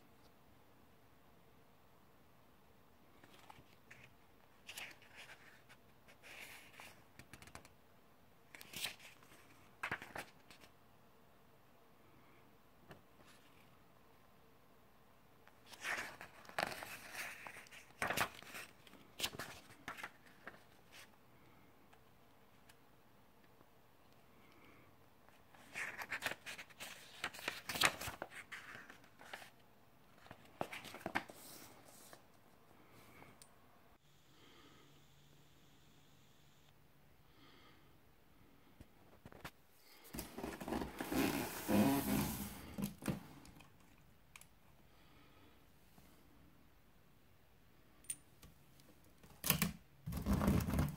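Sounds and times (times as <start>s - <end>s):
paper pages rustling: 3.2s - 7.7s, 8.6s - 10.7s, 15.6s - 21.1s, 25.4s - 29.6s, 30.2s - 32.2s
cardboard box scraping on wooden floor: 40.2s - 42.8s.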